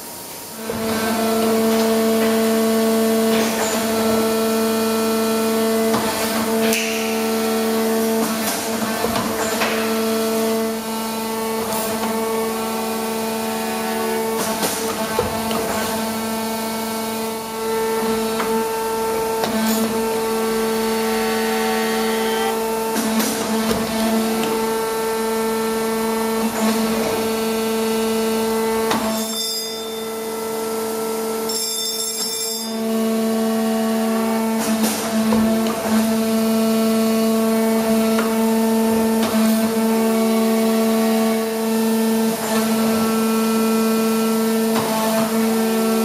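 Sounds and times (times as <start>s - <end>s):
hydraulic power unit humming: 0.0s - 29.1s.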